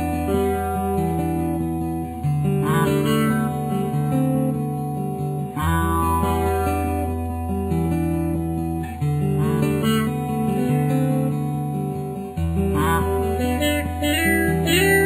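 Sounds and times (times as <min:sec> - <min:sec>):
instrumental guitar music: 0:00.0 - 0:15.0
held bass note: 0:13.8 - 0:15.0.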